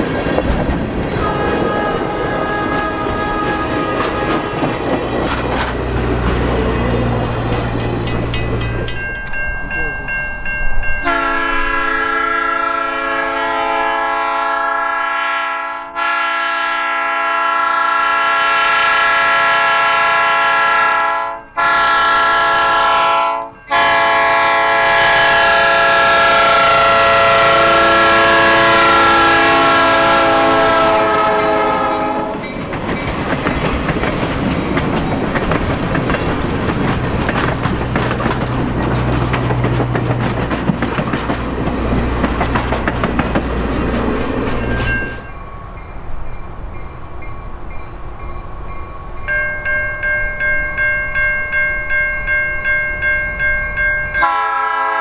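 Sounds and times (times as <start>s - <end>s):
wheels clicking over rail joints: 0.0s - 9.9s, 31.9s - 45.3s
passing train rumble: 0.0s - 55.0s
locomotive air horn: 1.1s - 4.9s, 11.0s - 32.4s, 54.2s - 55.0s.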